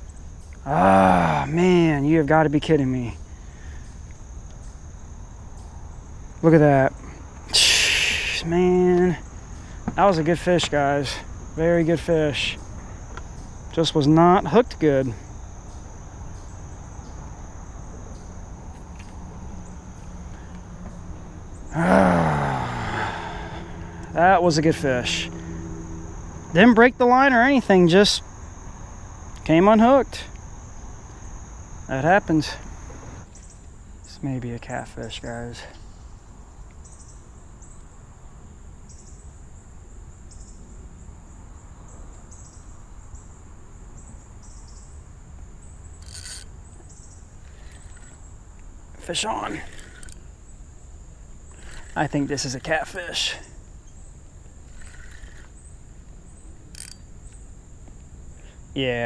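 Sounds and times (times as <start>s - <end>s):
insects chirring: 0.0s - 59.0s
man talking: 0.7s - 3.2s, 6.4s - 9.2s, 9.9s - 12.6s, 13.7s - 15.2s, 24.1s - 25.4s, 26.5s - 28.2s, 31.9s - 32.6s, 49.0s - 49.8s, 52.0s - 53.5s, 58.8s - 59.0s.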